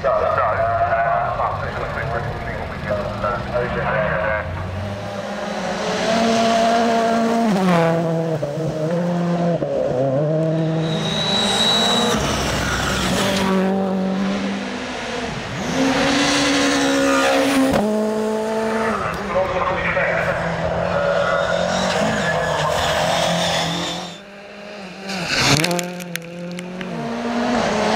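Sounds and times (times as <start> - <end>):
rally car engines at full throttle: 0.0 - 27.9.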